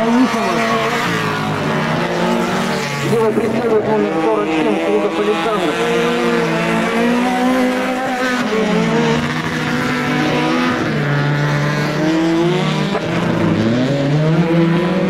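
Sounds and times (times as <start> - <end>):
race car engines revving: 0.0 - 15.0.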